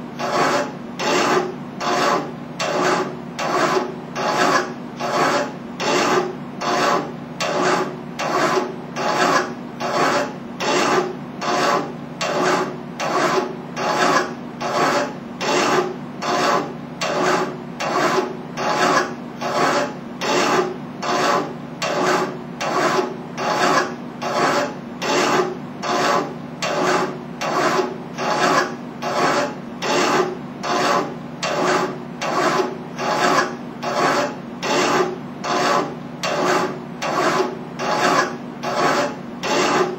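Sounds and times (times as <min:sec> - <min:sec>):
hand file rasping on metal: 0:00.2 - 0:39.9.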